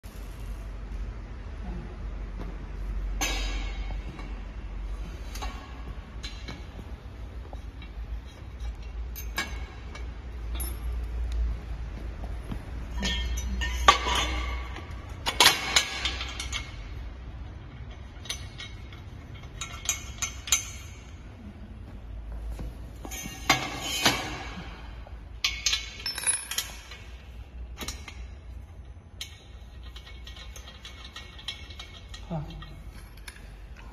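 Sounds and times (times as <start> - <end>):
metal tubes clinking and knocking: 3.2 - 21.3, 22.9 - 33.9.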